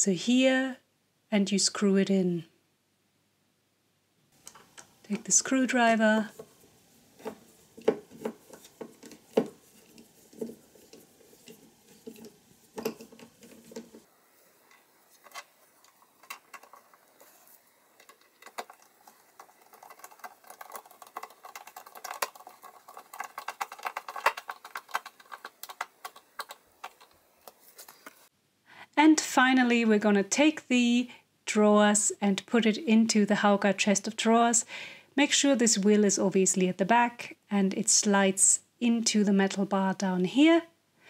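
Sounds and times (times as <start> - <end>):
screwdriver clicking and scraping: 7.2 - 14.1, 14.7 - 28.2.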